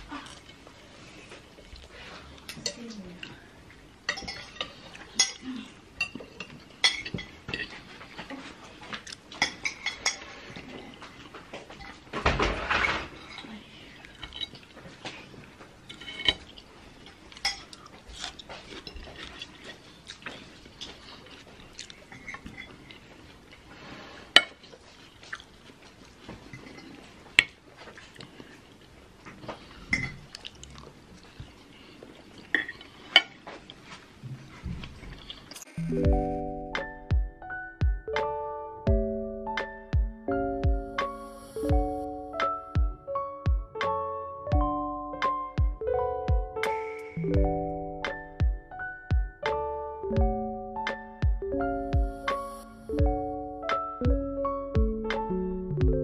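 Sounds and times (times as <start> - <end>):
soft chewing: 0.0 - 12.0, 13.2 - 35.8
cutlery clinking on a ceramic plate: 4.1 - 5.4, 6.0 - 7.8.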